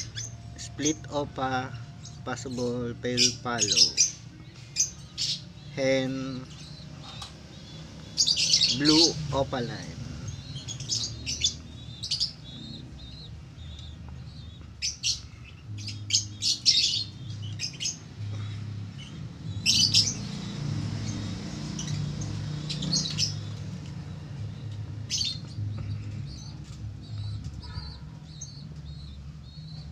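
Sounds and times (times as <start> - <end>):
lovebirds chirping: 0.0 - 29.9.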